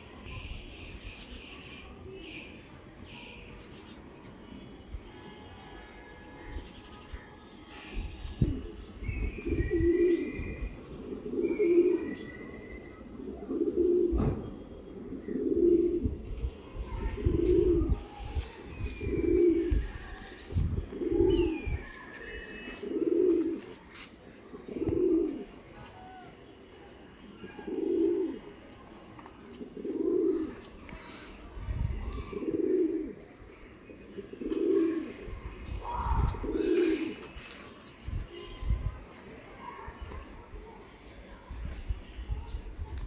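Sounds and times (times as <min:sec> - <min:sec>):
pigeon cooing: 0:08.3 - 0:16.2, 0:16.8 - 0:23.8, 0:24.5 - 0:25.6, 0:27.4 - 0:28.6, 0:29.6 - 0:30.7, 0:32.0 - 0:33.3, 0:33.9 - 0:37.3.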